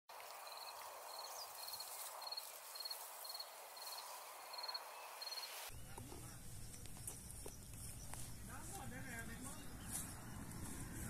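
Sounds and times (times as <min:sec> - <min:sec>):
steady background hiss: 0:00.1 - 0:10.0
insect chirping: 0:00.2 - 0:08.5.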